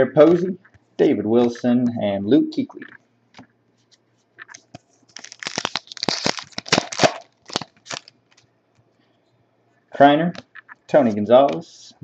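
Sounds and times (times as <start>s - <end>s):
foil wrapper crinkling and tearing: 4.5s - 8.4s.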